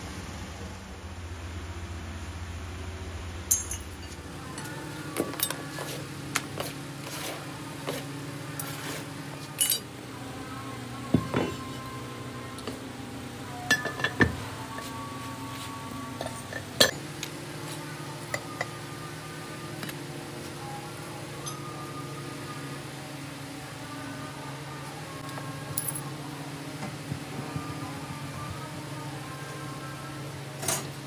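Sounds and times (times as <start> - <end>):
steady low hum: 0.0 - 31.0
metal clinks and knocks: 3.5 - 5.7.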